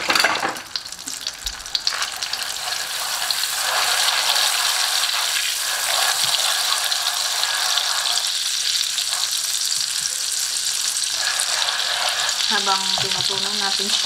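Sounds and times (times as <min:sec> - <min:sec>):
butter and sugar sizzling in a pan: 0:00.0 - 0:14.0.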